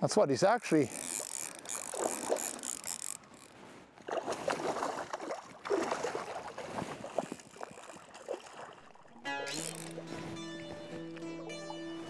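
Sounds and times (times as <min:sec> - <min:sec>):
fish splashing in water: 0:00.9 - 0:03.2, 0:04.1 - 0:09.9.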